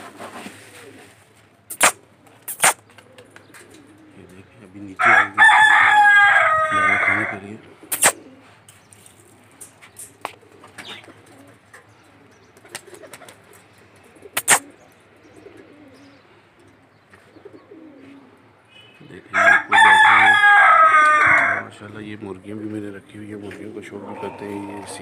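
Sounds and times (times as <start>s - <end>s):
pigeons cooing: 0.0s - 25.0s
sharp clack: 1.7s - 2.8s, 7.9s - 8.2s, 14.4s - 14.6s.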